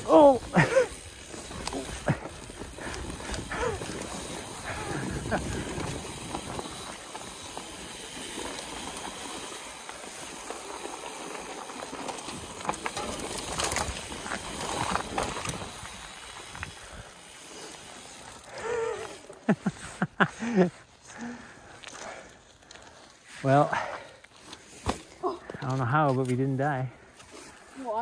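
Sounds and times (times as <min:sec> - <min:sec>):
bike tyres hissing over leaves: 0:00.0 - 0:28.0
clicks and rattles from bumps: 0:11.8 - 0:15.9.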